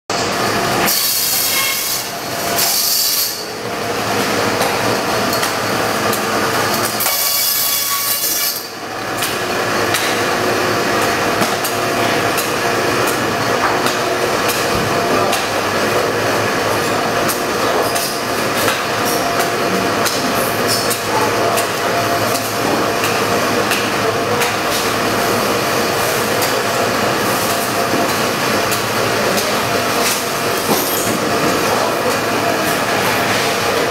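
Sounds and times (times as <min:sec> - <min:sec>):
band saw running: 0:00.1 - 0:33.9
saw blade screeching: 0:00.8 - 0:03.5, 0:07.0 - 0:08.8.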